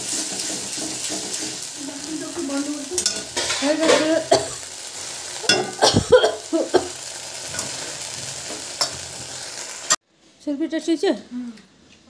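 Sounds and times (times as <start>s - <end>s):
metal spatula scraping a wok: 0.0s - 4.8s, 7.0s - 9.7s
steady sizzle: 0.0s - 10.0s.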